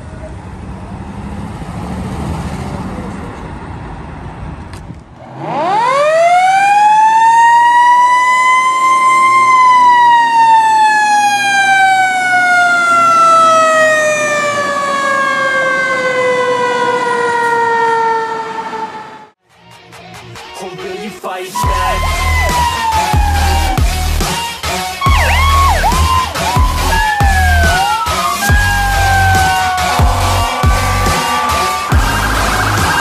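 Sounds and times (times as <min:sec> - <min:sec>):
mechanical siren wailing: 0:05.4 - 0:19.3, 0:21.6 - 0:24.3, 0:25.0 - 0:33.0.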